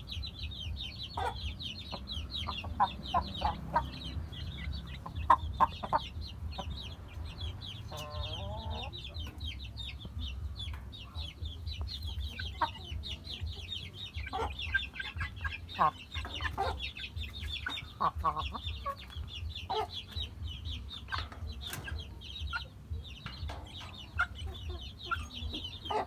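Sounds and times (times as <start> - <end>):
chicks peeping: 0.0 - 26.0
hens clucking: 0.0 - 26.0.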